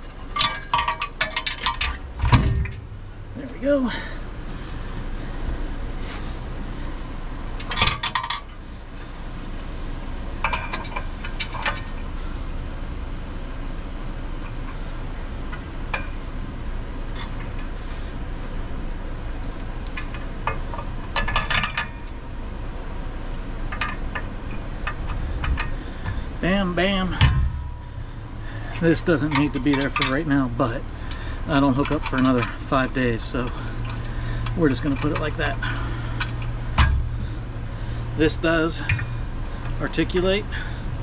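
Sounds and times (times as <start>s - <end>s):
metal clinking and rattling: 0.0s - 3.3s, 7.6s - 8.6s, 10.4s - 12.1s, 19.3s - 22.3s, 23.3s - 40.7s
steady low rumble: 0.0s - 41.0s.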